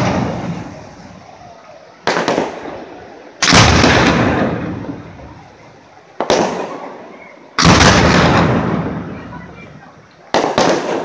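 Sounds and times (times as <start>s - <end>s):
firework shells bursting: 2.0s - 5.3s, 7.6s - 9.2s, 10.2s - 11.0s.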